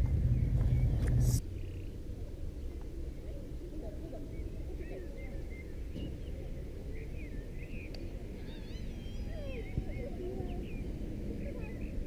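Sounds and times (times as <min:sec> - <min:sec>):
birds chirping and singing: 0:00.0 - 0:02.0, 0:04.1 - 0:12.0
low rumble: 0:00.0 - 0:03.6.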